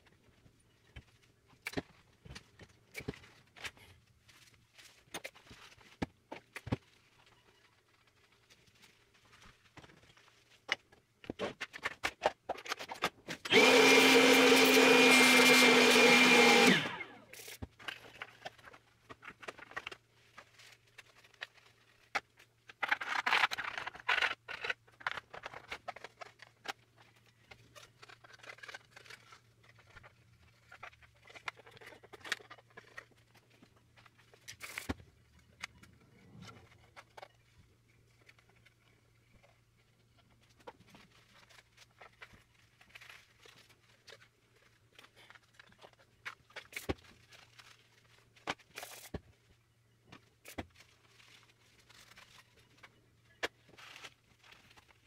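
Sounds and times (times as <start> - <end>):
small electric motor whining: 13.5 - 17.4.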